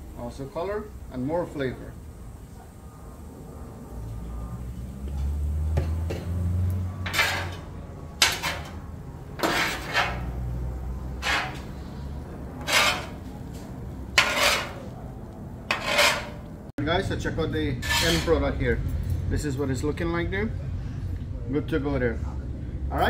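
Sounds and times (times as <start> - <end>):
metal spatulas scraping griddle: 7.0 - 15.0, 15.7 - 16.6, 17.8 - 18.4.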